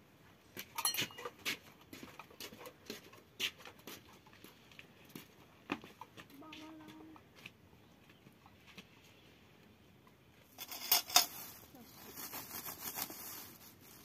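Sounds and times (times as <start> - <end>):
jars and pot clinking in a crate: 0.8 - 1.4, 10.5 - 11.6.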